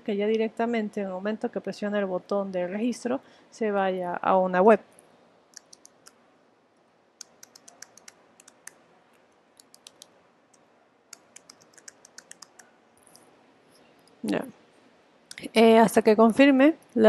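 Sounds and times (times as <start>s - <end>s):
keyboard typing: 5.5s - 6.2s, 7.2s - 8.8s, 9.6s - 10.1s, 11.1s - 12.7s.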